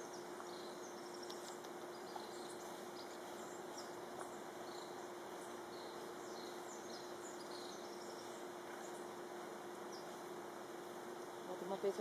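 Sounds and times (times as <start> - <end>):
faint background hiss: 0.0 - 12.0
steady hum: 0.0 - 12.0
small tick: 1.2 - 1.8.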